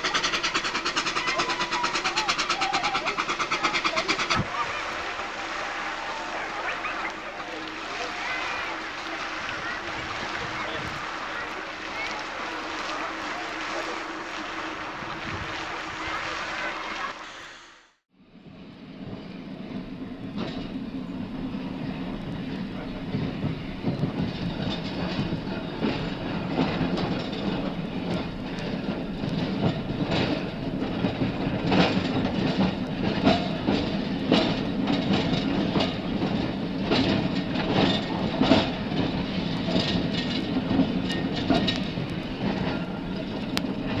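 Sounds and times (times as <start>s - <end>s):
wheels clicking over rail joints: 0.0s - 5.0s, 18.9s - 44.0s
train rumbling along track: 0.0s - 44.0s.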